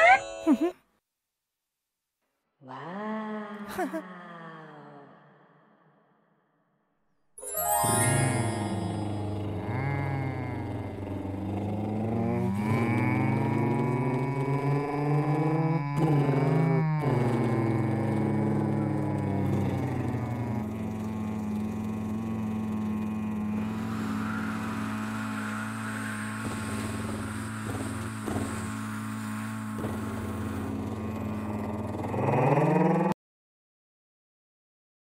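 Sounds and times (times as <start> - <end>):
cartoon truck engine droning hum: 7.4 - 33.2.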